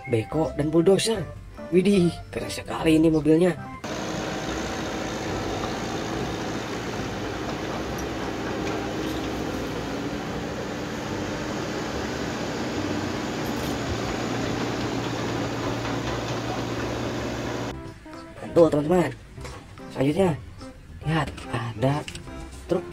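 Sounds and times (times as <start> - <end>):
excavator diesel engine running: 3.8 - 17.7.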